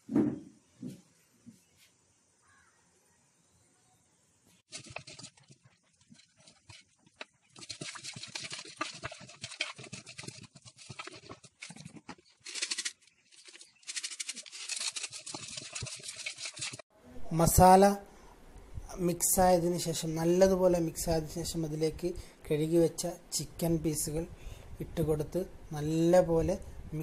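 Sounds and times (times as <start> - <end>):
hand squishing spice paste: 4.7 - 16.8
mixing in a steel bowl: 4.7 - 16.8.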